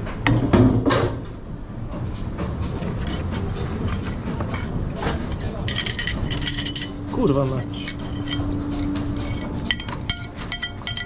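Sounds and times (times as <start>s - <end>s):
kitchen machinery rumble: 0.0s - 11.0s
dishes clattering: 2.6s - 11.0s
small clinks: 5.3s - 11.0s.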